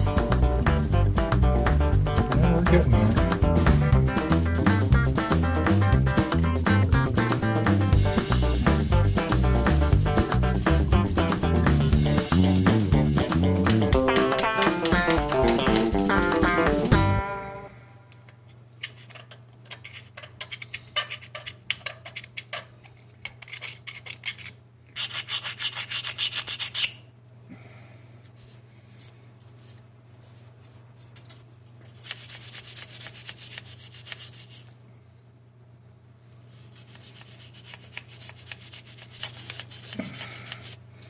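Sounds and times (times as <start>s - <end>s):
hand scraping metal: 8.1s - 16.0s, 18.8s - 27.0s, 36.4s - 40.8s.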